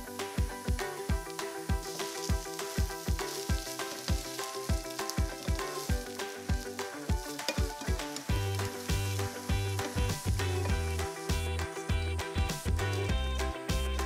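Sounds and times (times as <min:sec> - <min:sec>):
background music with steady beat: 0:00.0 - 0:14.0
vegetables sizzling in a frying pan: 0:00.1 - 0:11.6
wooden spatula stirring: 0:01.8 - 0:10.7.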